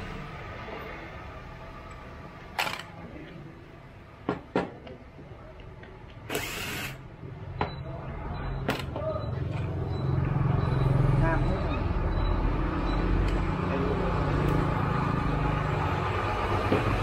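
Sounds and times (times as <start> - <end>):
cordless drill whirring: 6.3 - 7.0.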